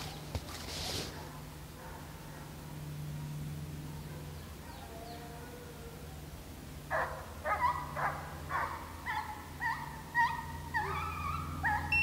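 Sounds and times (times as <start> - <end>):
hounds baying: 6.9 - 12.0.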